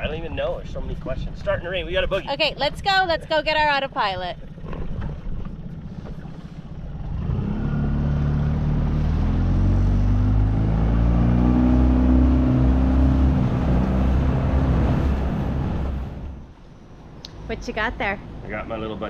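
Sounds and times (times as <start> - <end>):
outboard motor revving: 2.5 - 16.5.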